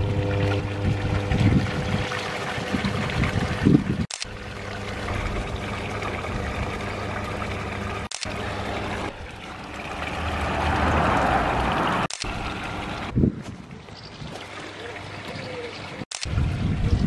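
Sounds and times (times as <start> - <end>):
water falling into pool: 4.2 - 13.1.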